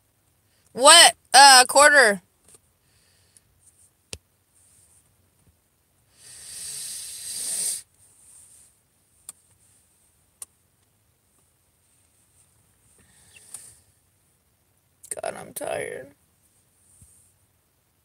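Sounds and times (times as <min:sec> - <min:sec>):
breathy exhale: 0:06.1 - 0:07.9, 0:13.0 - 0:14.0.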